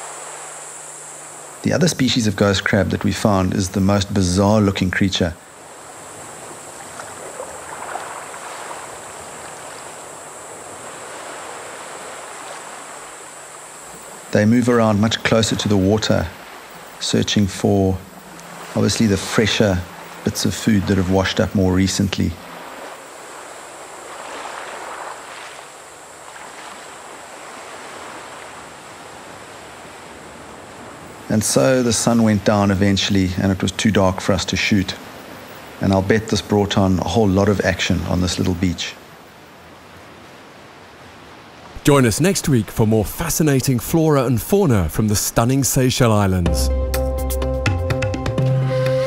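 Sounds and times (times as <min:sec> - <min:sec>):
small waves washing on beach: 0:00.0 - 0:46.0
faint ticks: 0:18.2 - 0:18.6.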